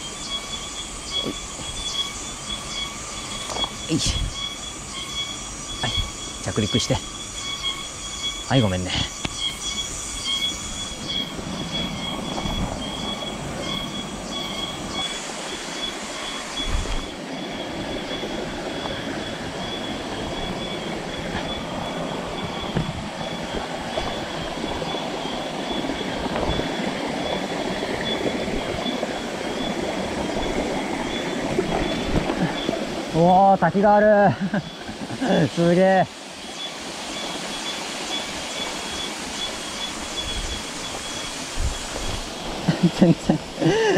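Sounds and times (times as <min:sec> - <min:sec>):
stream water rushing: 0:00.0 - 0:43.9.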